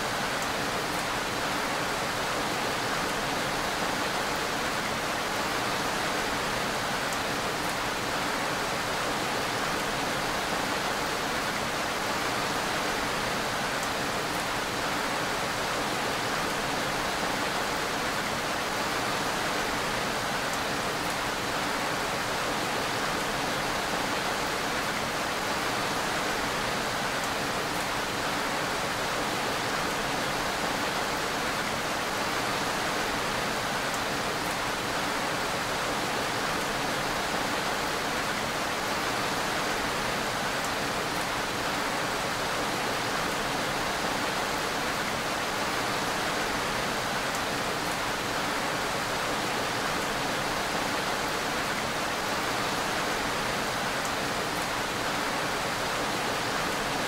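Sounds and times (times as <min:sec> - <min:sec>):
dense rainfall hiss: 0:00.0 - 0:57.0
faint raindrop ticks: 0:13.8 - 0:14.5.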